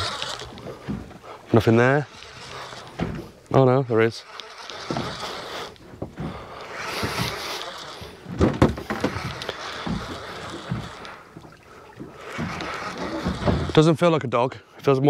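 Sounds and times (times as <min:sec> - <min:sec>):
water against boat hull: 0:00.0 - 0:14.4
sharp knocks: 0:08.3 - 0:13.8.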